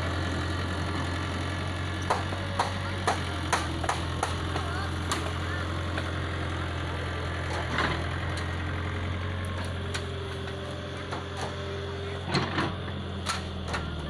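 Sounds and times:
excavator diesel engine running: 0.0 - 14.0
excavator knocks and clacks: 1.5 - 14.0.

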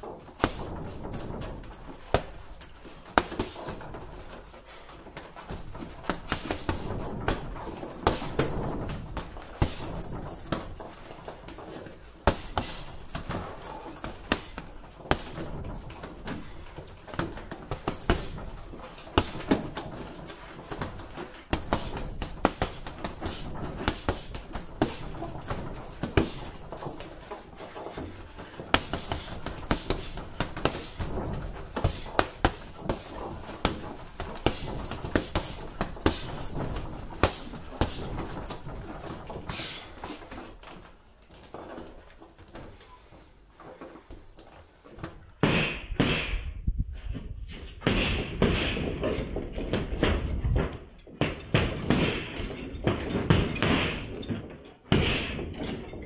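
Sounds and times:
punches thudding on heavy bag: 0.1 - 40.2, 45.4 - 46.4, 47.8 - 50.1, 54.9 - 55.6.

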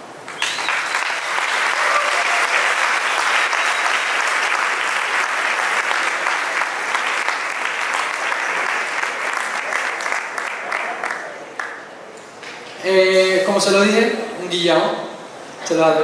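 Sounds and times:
audience applauding: 0.2 - 12.8.

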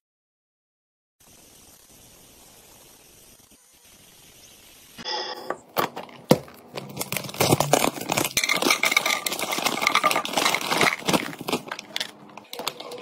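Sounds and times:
candy pattering into plastic container: 5.8 - 13.0
plastic bag crinkling: 5.8 - 13.0.

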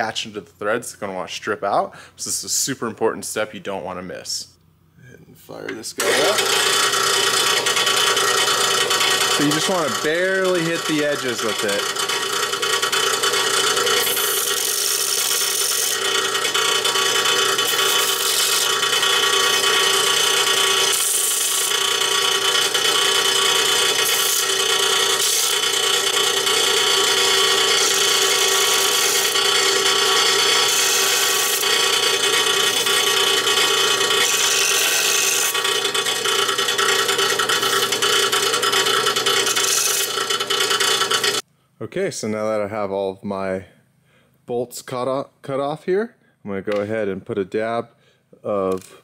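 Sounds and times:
bench sander running: 6.0 - 41.4
steel bolt grinding on disc: 6.0 - 41.4.

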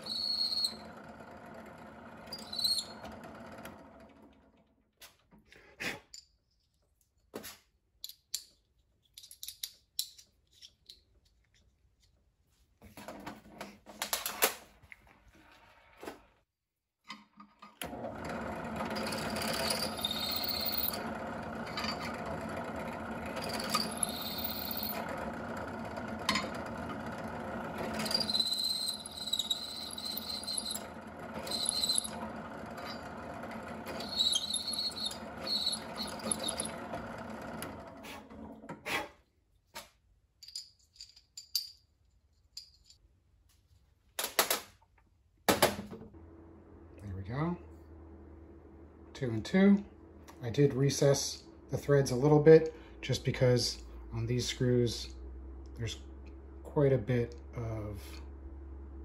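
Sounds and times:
drill bit squealing: 0.0 - 1.2, 2.2 - 3.3, 18.8 - 22.2, 23.3 - 25.1, 27.7 - 37.0
drill press motor running: 0.0 - 4.6, 17.8 - 38.7, 46.2 - 59.0.

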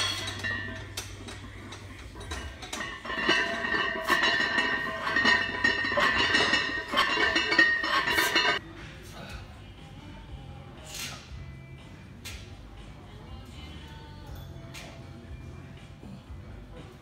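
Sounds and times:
barbell clanking metal-on-metal: 0.0 - 8.6.

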